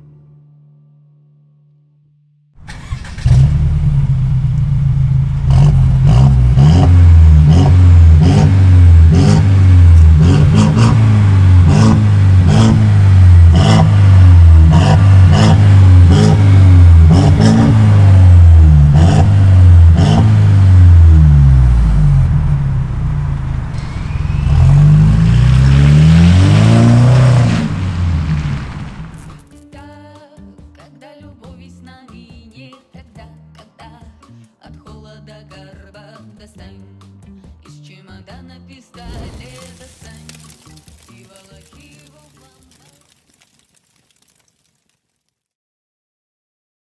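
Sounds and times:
car engine revving: 2.6 - 29.5
exhaust pops and crackles: 3.2 - 21.2, 21.8 - 29.6, 39.0 - 45.3.

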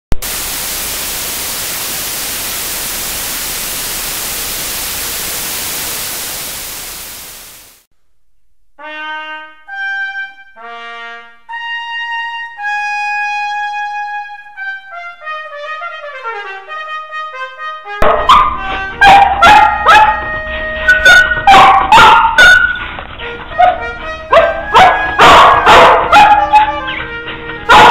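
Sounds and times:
tv static hiss: 0.1 - 7.9
trumpet fanfare: 8.8 - 27.9
dogs barking: 18.0 - 27.9.

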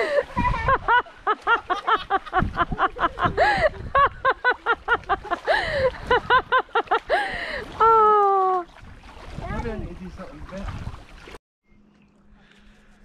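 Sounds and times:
child laughing: 0.0 - 7.6.

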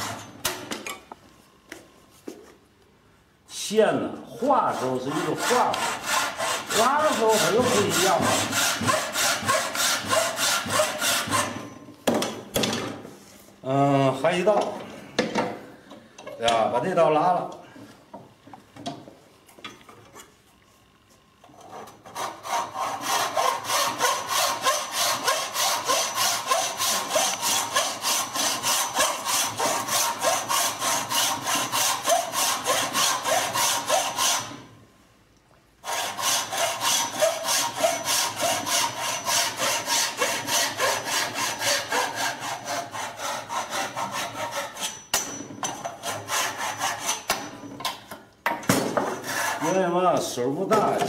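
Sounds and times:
hand saw cutting wood: 0.0 - 0.7, 4.4 - 11.7, 21.5 - 34.7, 35.8 - 47.6, 48.9 - 50.0.

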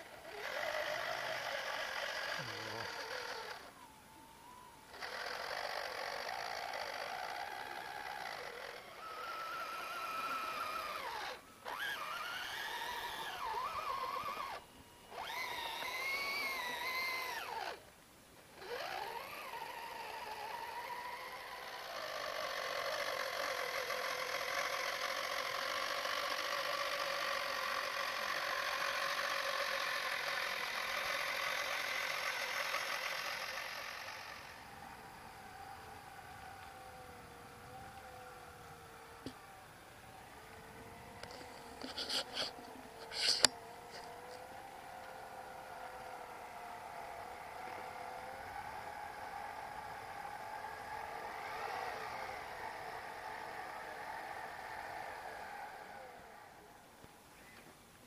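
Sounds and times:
electric motor and gearbox whining: 0.0 - 57.7.

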